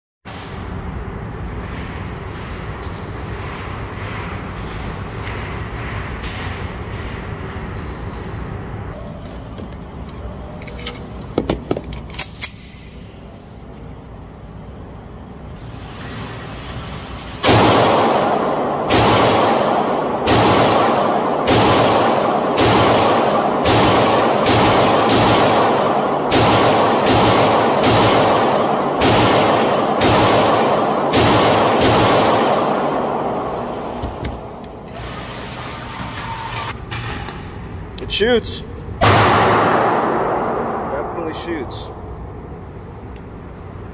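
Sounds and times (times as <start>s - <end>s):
steady background rush: 0.3s - 43.9s
pistol shots echoing indoors: 17.4s - 34.6s, 39.0s - 41.4s.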